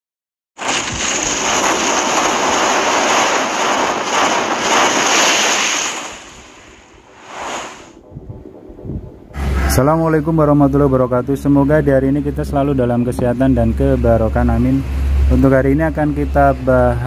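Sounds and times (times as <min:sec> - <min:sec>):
loud rushing whoosh: 0:00.6 - 0:11.0.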